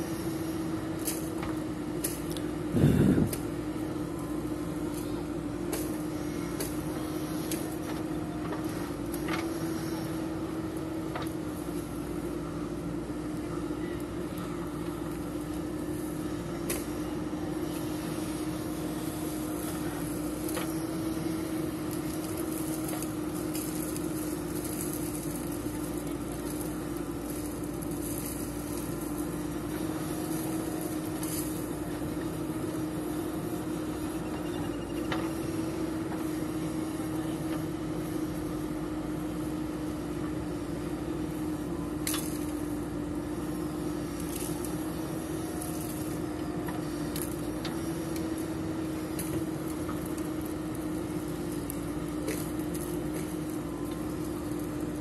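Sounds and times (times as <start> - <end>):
diesel engine running: 0.0 - 55.0.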